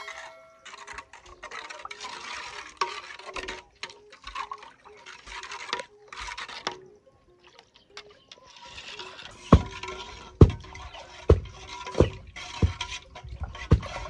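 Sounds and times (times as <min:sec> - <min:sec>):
liquid sloshing: 0:00.6 - 0:14.0
spoon scraping metal saucepan: 0:08.4 - 0:13.1.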